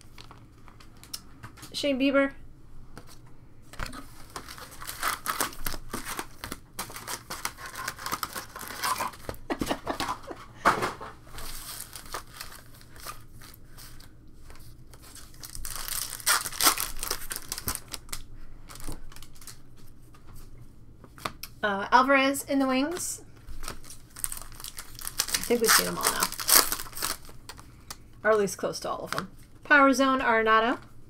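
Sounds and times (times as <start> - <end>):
foil wrapper tearing and crinkling: 3.8 - 9.5, 11.4 - 14.1, 14.9 - 19.6, 23.6 - 27.6.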